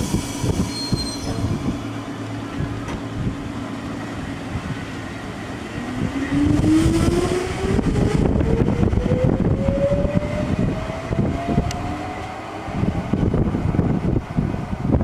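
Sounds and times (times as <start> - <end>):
train wheels rumbling on track: 0.0 - 15.0.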